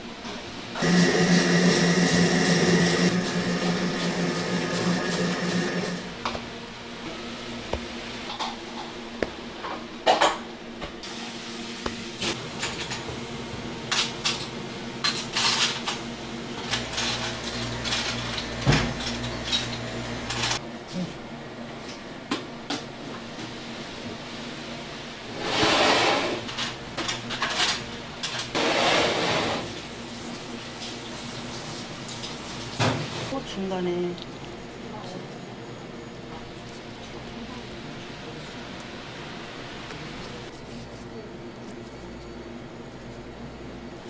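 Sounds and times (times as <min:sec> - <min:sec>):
electric motor hum: 0:00.8 - 0:06.3, 0:16.6 - 0:20.6.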